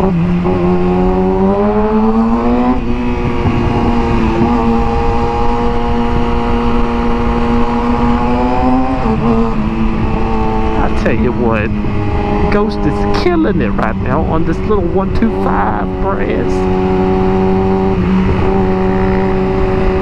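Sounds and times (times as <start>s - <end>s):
motorcycle engine accelerating: 0.0s - 20.0s
wind rushing over microphone: 0.0s - 20.0s.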